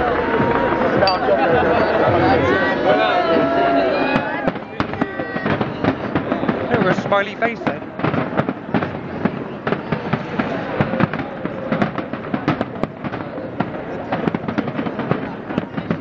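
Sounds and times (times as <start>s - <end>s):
crowd voices: 0.0s - 16.0s
fireworks bangs and crackles: 0.0s - 16.0s.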